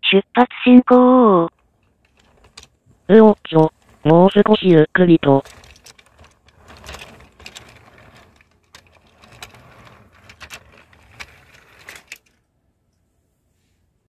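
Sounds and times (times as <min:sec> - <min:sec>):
wheels clicking over track joints: 0:01.5 - 0:04.1, 0:05.4 - 0:12.4
toy train rolling on plastic track: 0:01.5 - 0:12.4.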